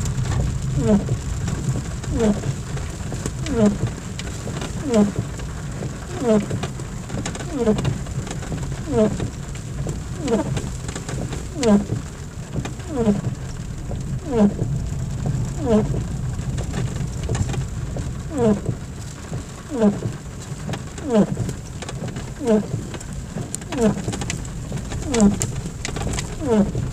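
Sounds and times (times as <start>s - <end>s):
car driving rumble: 0.0s - 26.9s
wiper blades squeaking on glass: 11.5s - 12.0s, 12.9s - 13.3s, 15.6s - 16.0s, 23.8s - 24.0s, 25.1s - 25.4s, 26.4s - 26.8s.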